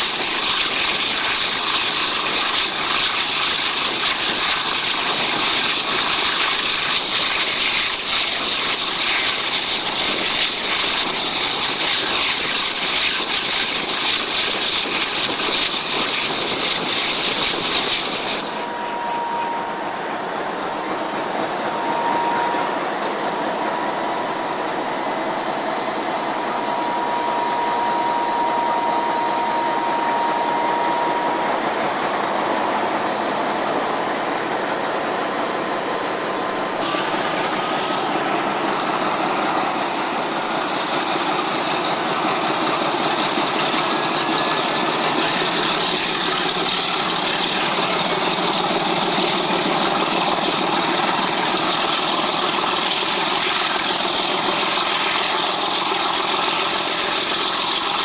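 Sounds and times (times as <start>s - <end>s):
locomotive engine under load: 0.0s - 58.0s
train rolling noise: 0.0s - 58.0s
wind: 0.0s - 58.0s
faint whine: 17.7s - 40.9s.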